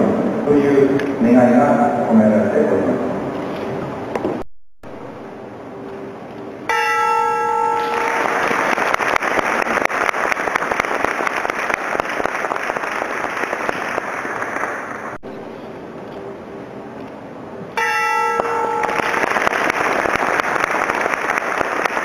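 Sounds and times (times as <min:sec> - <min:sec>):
large bell ringing: 0:06.7 - 0:08.7, 0:17.8 - 0:19.4
applause: 0:07.8 - 0:15.2, 0:18.8 - 0:22.0.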